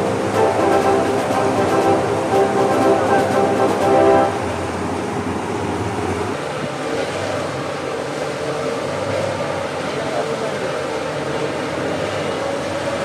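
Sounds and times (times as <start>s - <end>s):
music: 0.0s - 4.6s.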